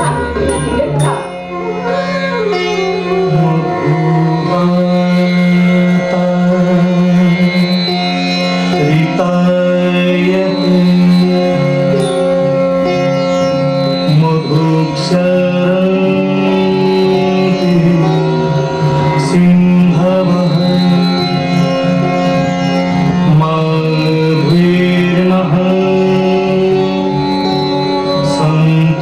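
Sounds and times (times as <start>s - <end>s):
sharp strikes: 0.0s - 1.5s, 12.0s - 12.6s
melodic line bending in pitch: 0.0s - 5.2s, 6.4s - 22.5s.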